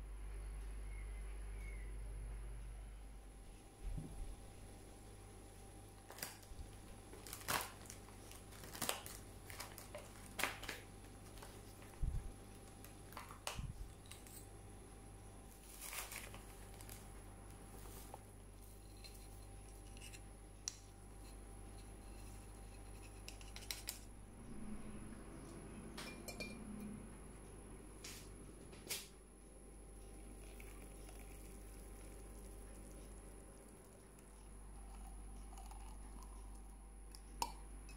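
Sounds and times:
paper bag crinkling: 6.1 - 12.0, 15.5 - 18.2.

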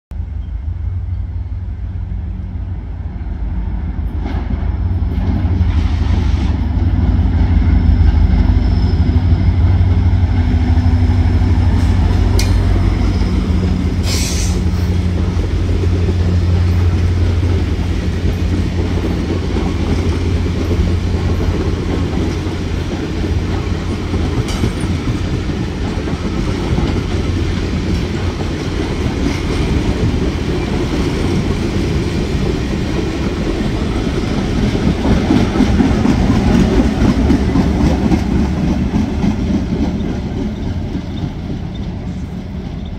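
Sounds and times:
locomotive engine drone: 0.1 - 42.9
train wheels rumbling on rails: 0.1 - 42.9
short high hiss: 14.0 - 14.6.

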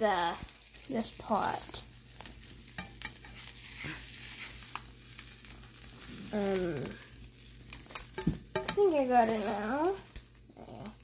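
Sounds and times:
eggs sizzling in a frying pan: 0.0 - 11.0
plastic spatula scraping a pan: 3.0 - 4.8, 8.7 - 9.7.

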